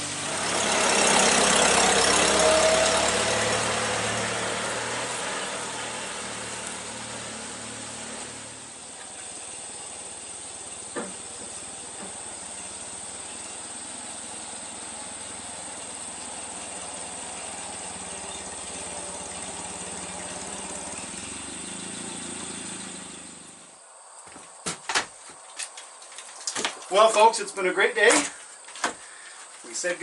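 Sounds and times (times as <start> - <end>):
tractor engine running: 0.0 - 23.8.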